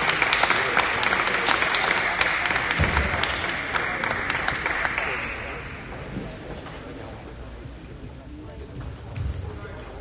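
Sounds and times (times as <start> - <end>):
crowd applauding: 0.0 - 5.9.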